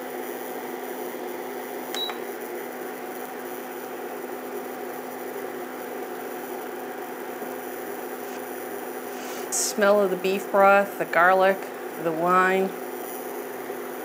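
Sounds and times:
hot plate humming: 0:00.0 - 0:14.0
short beep: 0:02.0 - 0:02.2.

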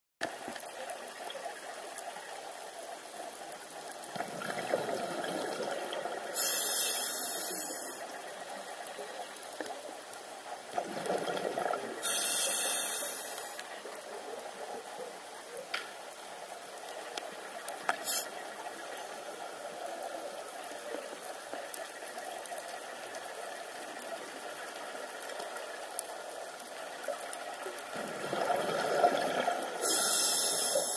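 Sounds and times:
faint clicks: 0:00.2 - 0:04.7, 0:06.4 - 0:28.1
underwater regulator bubbling hiss: 0:04.1 - 0:08.5, 0:10.8 - 0:13.9, 0:17.8 - 0:20.2, 0:27.6 - 0:30.9
regulator exhale bubbling: 0:28.1 - 0:30.9
breath drawn through regulator: 0:29.8 - 0:30.9.

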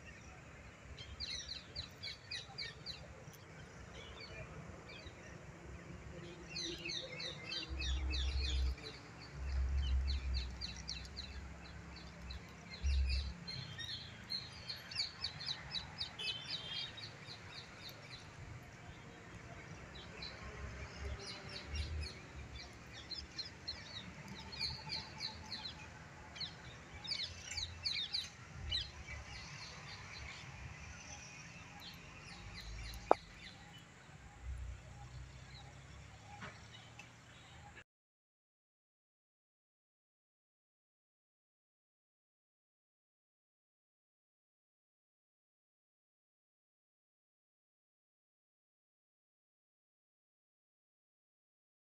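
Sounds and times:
small birds chirping: 0:00.0 - 0:37.8.

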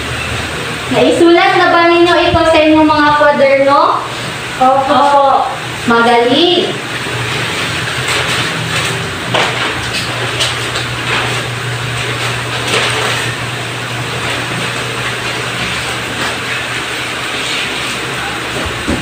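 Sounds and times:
paper rustling and crinkling: 0:07.3 - 0:18.9.

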